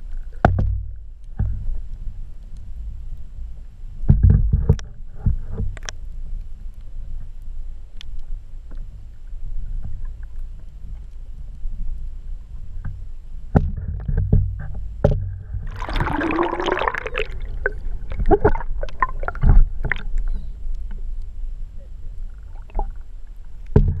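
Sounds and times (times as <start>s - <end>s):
muffled underwater rumble: 0.0s - 24.0s
knocks and bumps: 23.7s - 24.0s.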